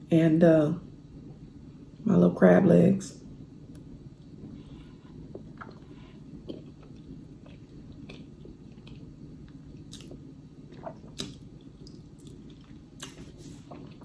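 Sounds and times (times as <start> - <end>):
person chewing: 4.6 - 14.0.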